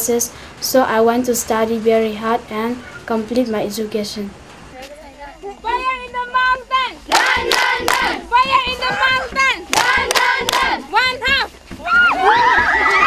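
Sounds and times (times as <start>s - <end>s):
girls singing in unison: 7.1s - 9.0s, 9.7s - 10.9s
hands clapping in time: 7.1s - 11.4s.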